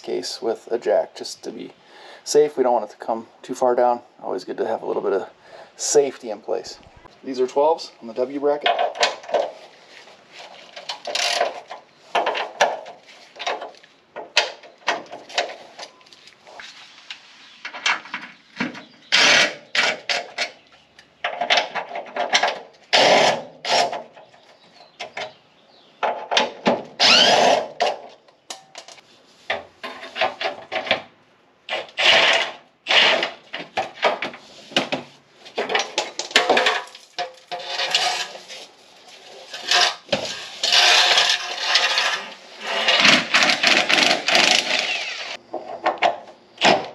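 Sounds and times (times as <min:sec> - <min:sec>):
cordless power tool bursts: 0:27.0 - 0:27.7, 0:42.8 - 0:45.4.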